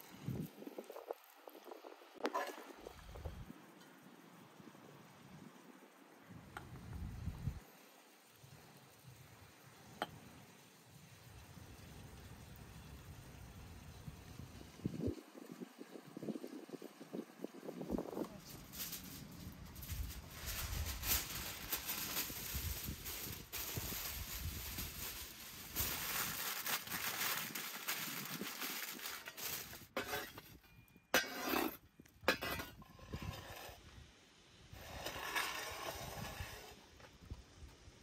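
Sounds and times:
aluminium foil crinkling: 17.6 - 30.6.

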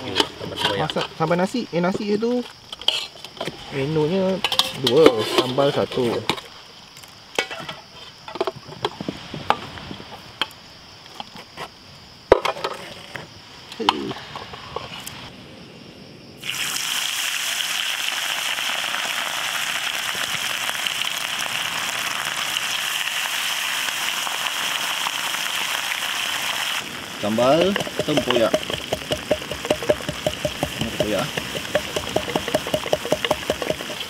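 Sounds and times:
utensils clinking on a pan: 4.4 - 6.4, 27.6 - 34.0
food sizzling in hot oil: 16.4 - 34.0.

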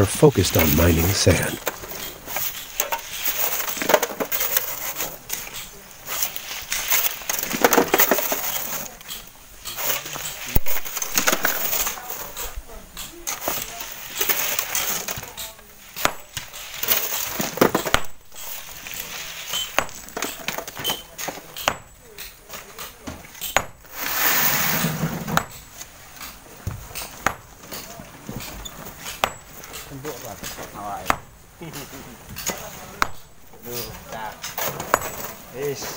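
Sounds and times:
voices in background: 20.6 - 23.4, 25.9 - 35.9.

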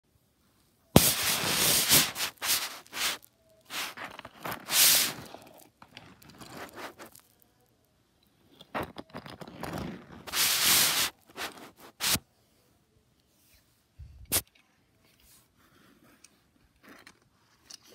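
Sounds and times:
scraping on carpet mat: 1.0 - 5.4, 6.2 - 7.3, 8.8 - 12.2.

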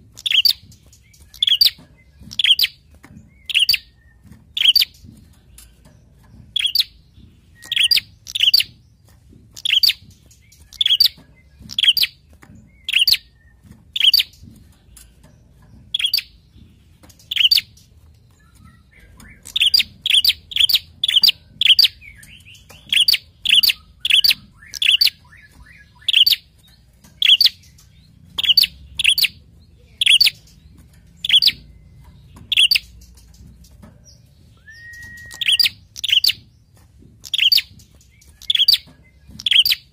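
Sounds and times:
bird calling sharp high notes: 34.6 - 36.4.

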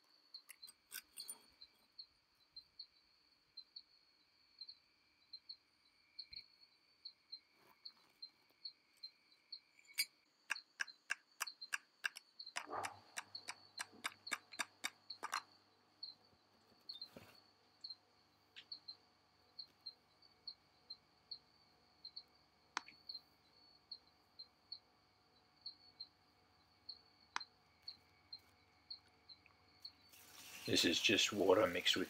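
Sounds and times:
sharp clicks: 10.5 - 15.5
high-pitched insect-like trill: 27.8 - 32.0.

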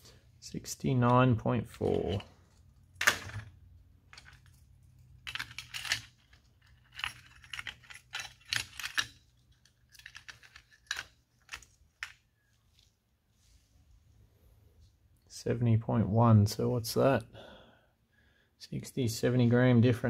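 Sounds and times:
metal hooks jangling and clicking: 4.1 - 12.1.

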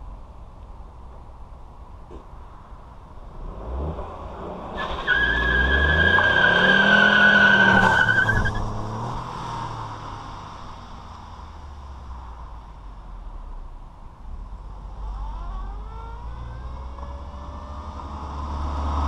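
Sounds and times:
car accelerating past: 3.4 - 11.6, 15.2 - 19.0.

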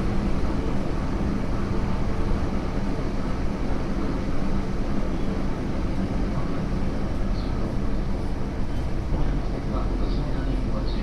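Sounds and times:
train wheels rumbling on rail: 0.0 - 11.0.

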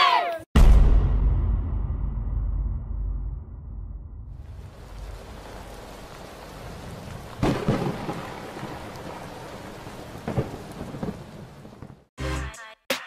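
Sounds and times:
thunderclap and rumble: 0.6 - 12.1
steady rain: 4.3 - 12.1.

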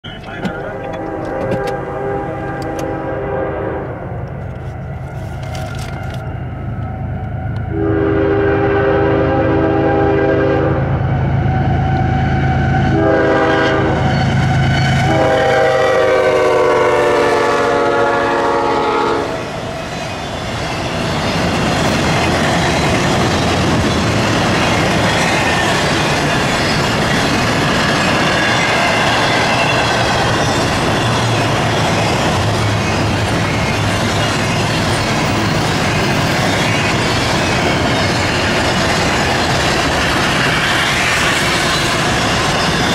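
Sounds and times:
locomotive engine drone: 0.0 - 42.9
locomotive air horn: 0.4 - 4.2, 7.3 - 11.0, 12.4 - 14.3, 14.9 - 19.5
train wheels clacking on rails: 13.6 - 42.9.

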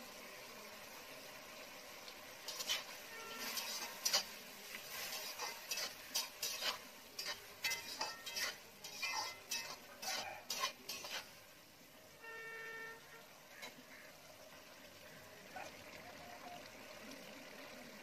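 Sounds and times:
metal spatula scraping metal pan: 2.4 - 11.4, 13.5 - 14.0.

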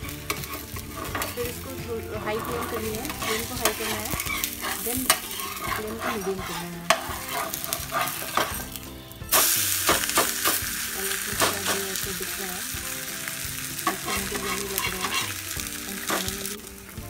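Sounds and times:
spatula scraping pan: 0.0 - 16.6
batter sizzling in oil: 0.0 - 17.0.

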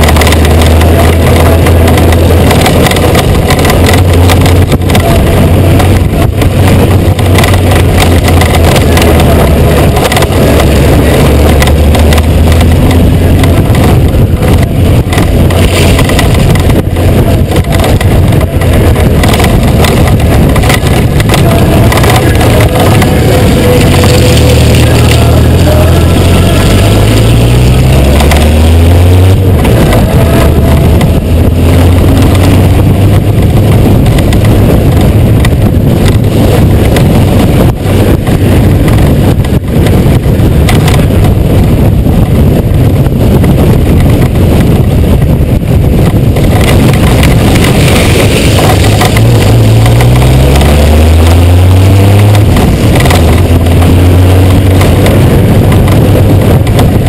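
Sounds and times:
motorcycle engine running: 0.0 - 57.0
wind noise on microphone: 0.0 - 57.0.

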